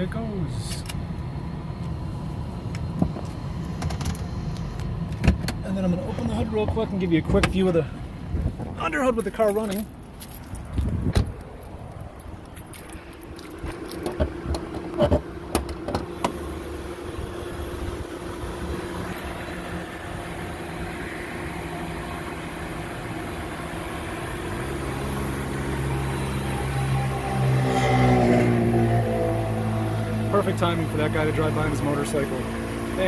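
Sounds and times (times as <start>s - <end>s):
car engine idling: 0.0s - 27.7s, 28.6s - 33.0s
hood clicks and knocks: 12.1s - 16.4s
motorcycle passing: 17.1s - 33.0s.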